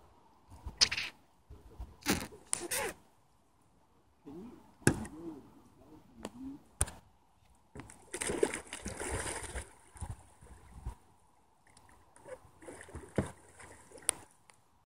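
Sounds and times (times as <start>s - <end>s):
kayak splashing into water: 7.8s - 10.1s, 12.6s - 14.3s
churning water: 7.8s - 10.9s, 11.7s - 14.3s
water sloshing: 7.8s - 11.0s, 11.6s - 14.4s.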